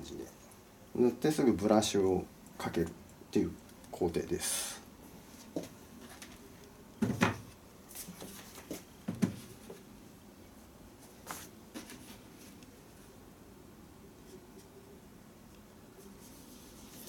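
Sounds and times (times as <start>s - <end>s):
shoes knocking on wooden bench: 8.7s - 9.8s.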